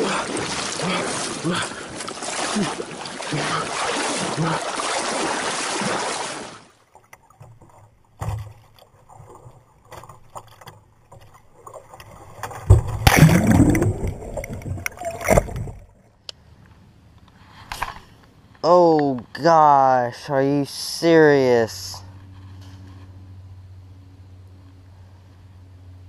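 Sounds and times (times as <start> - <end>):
rushing water: 0.0 - 15.9
water splashing and churning: 0.0 - 16.1.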